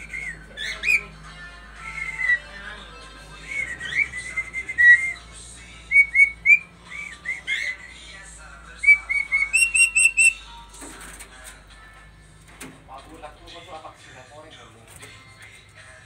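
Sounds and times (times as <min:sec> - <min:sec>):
myna whistling: 0:00.0 - 0:01.2, 0:01.8 - 0:02.6, 0:03.4 - 0:08.0, 0:08.8 - 0:10.5.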